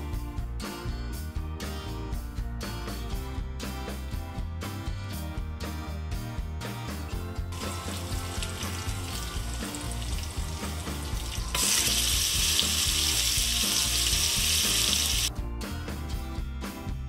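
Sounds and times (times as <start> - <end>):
hot oil sizzling: 7.5 - 15.3.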